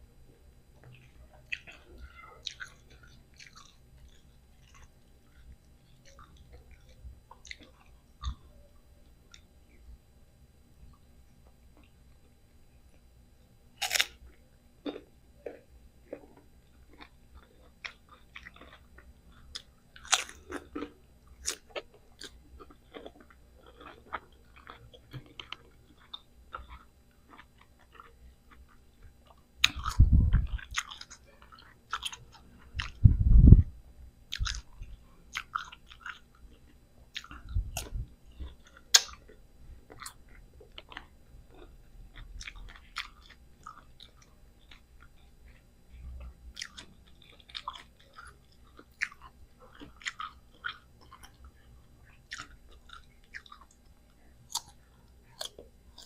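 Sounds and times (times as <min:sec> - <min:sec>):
crunchy biting and chewing: 0:00.9 - 0:08.4, 0:13.8 - 0:33.0, 0:34.3 - 0:53.9, 0:54.5 - 0:56.0
deep low thumps: 0:29.8 - 0:30.6, 0:32.9 - 0:33.8.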